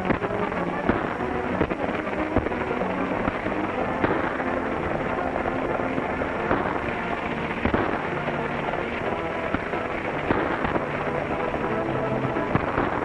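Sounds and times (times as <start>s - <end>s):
chase music: 0.0s - 13.0s
horses galloping: 0.0s - 13.0s
sharp cracks: 0.0s - 13.0s.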